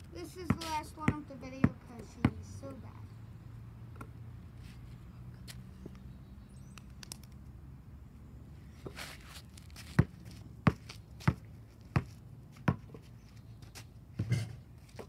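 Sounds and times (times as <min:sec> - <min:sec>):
basketball bouncing on asphalt: 0:00.4 - 0:02.8, 0:03.9 - 0:04.2, 0:08.8 - 0:13.2.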